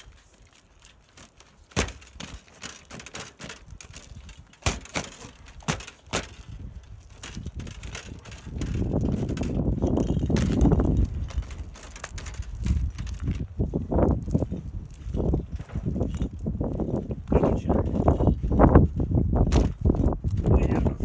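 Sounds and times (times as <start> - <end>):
metal frame clinking and clanking: 0.8 - 13.5, 19.4 - 21.0.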